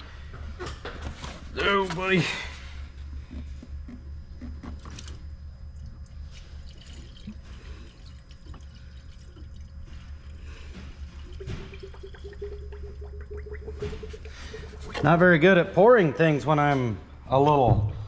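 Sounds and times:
steady low hum: 0.0 - 18.0
liquid trickling and dripping: 4.7 - 15.3.

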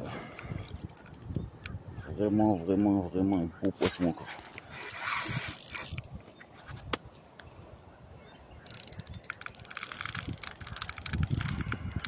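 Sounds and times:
fishing reel gears ticking: 0.0 - 1.8, 4.7 - 6.2, 8.6 - 12.0.

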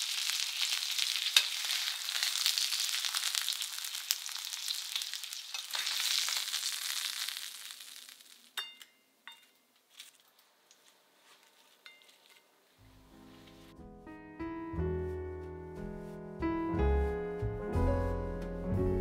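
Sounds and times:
food sizzling in a frying pan: 0.0 - 8.6
utensils clinking on a plate: 8.6 - 10.2, 11.7 - 12.5
piano music: 12.8 - 19.0.

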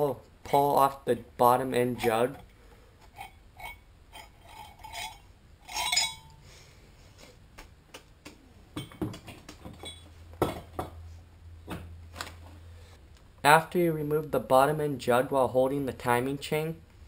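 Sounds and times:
light metal clinks and knocks: 2.0 - 6.4, 8.8 - 11.0
chain rattling: 3.2 - 6.4.

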